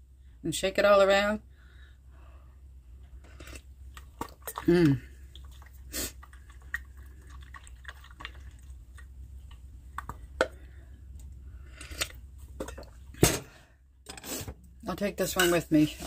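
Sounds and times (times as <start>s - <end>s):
liquid sloshing in bottle: 3.4s - 10.6s, 11.8s - 13.2s.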